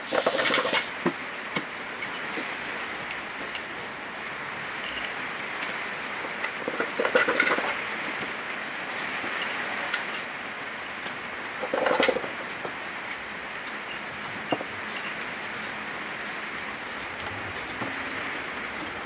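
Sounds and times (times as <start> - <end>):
clatter of metal parts: 0.0 - 0.9, 2.0 - 4.0, 4.8 - 10.3, 11.6 - 12.7, 13.7 - 15.8
workshop hiss: 0.0 - 1.8.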